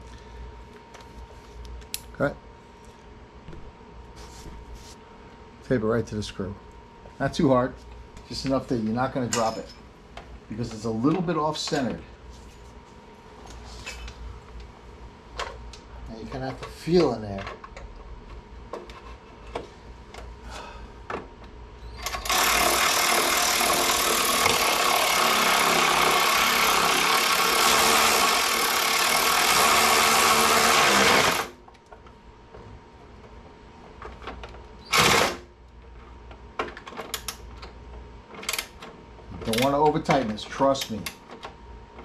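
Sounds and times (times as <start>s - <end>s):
cordless power tool motor: 21.9s - 31.6s, 34.8s - 35.5s.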